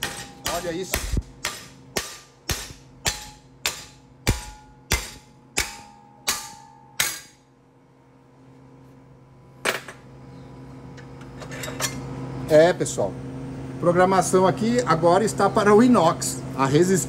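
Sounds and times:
hammer striking steel: 0.0s - 7.5s.

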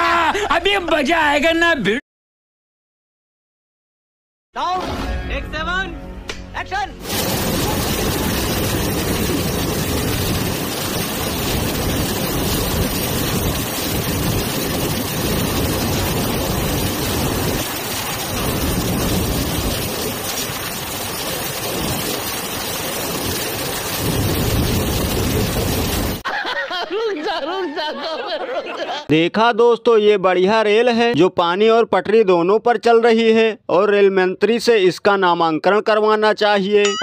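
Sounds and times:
heavy rain: 7.0s - 26.2s
rushing churned water: 7.0s - 26.2s.

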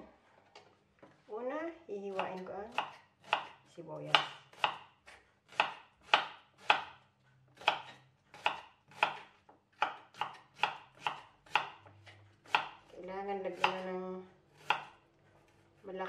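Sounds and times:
knife chopping on wooden board: 2.1s - 7.0s, 7.6s - 12.9s, 13.5s - 14.0s, 14.6s - 15.0s.

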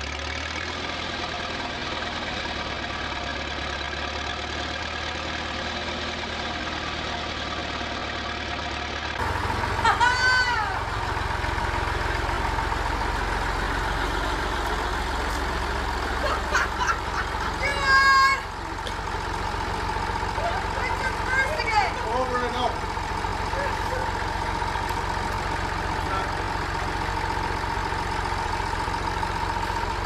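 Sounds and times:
tractor engine running: 0.0s - 30.0s
woman's high rising-and-falling cry: 9.7s - 10.9s, 17.5s - 18.5s.

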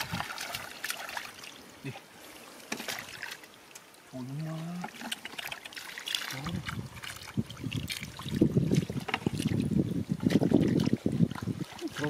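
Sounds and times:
hands splashing in muddy water: 0.0s - 1.5s.

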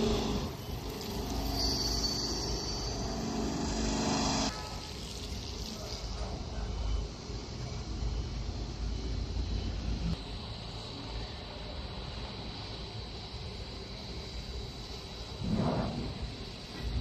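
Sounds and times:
high whine: 0.0s - 5.6s
steady hum: 0.0s - 17.0s.

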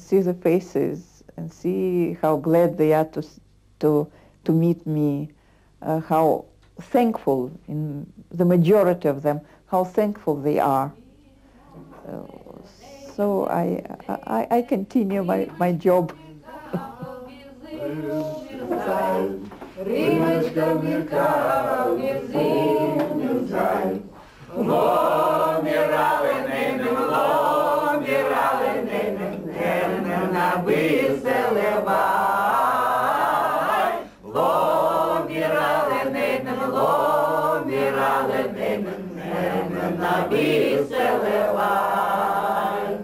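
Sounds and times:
group of people singing: 16.3s - 43.0s.

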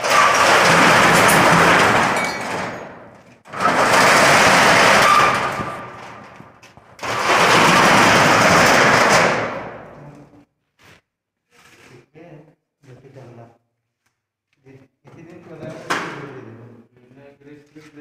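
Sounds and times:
metal rolling shutter rattling: 0.0s - 10.0s.

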